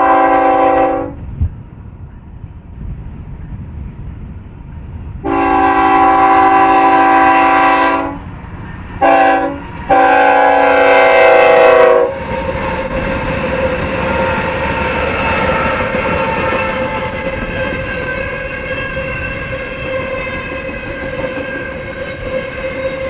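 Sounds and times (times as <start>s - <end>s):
locomotive air horn blasts: 0.0s - 1.2s, 5.2s - 8.2s, 9.0s - 23.0s
diesel locomotive engines passing: 0.0s - 23.0s.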